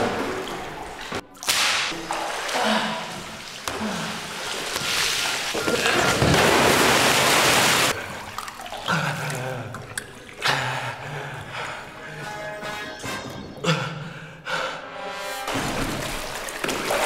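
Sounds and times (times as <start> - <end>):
water rushing: 0.0 - 10.4, 15.5 - 17.0.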